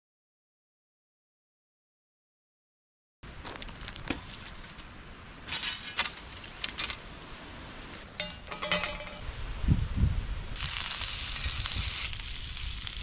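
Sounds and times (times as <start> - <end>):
cookware scraping on grill grate: 8.1 - 9.2
frying pan clattering and ringing: 8.2 - 9.2.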